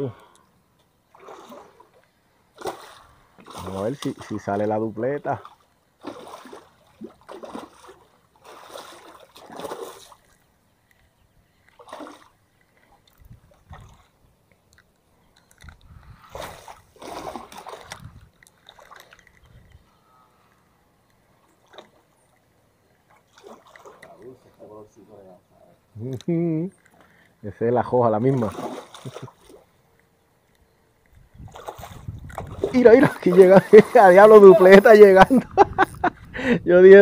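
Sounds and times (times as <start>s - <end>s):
river water splashing: 1.0s - 11.0s, 11.6s - 15.1s, 16.3s - 20.2s, 21.0s - 25.0s, 28.2s - 30.6s, 31.4s - 35.9s.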